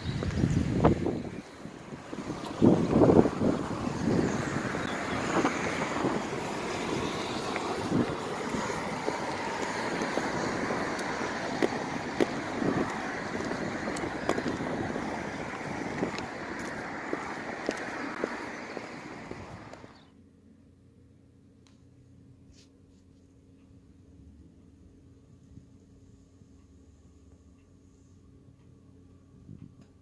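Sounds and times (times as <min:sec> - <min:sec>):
wind buffeting microphone: 0:00.0 - 0:20.0
steady outdoor hiss: 0:00.0 - 0:30.0
footsteps on paving slabs: 0:02.0 - 0:20.0.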